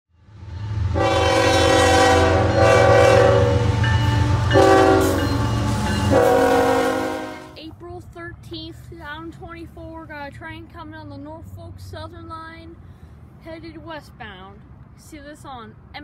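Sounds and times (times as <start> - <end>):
locomotive air horn blasts: 0.9 - 7.6.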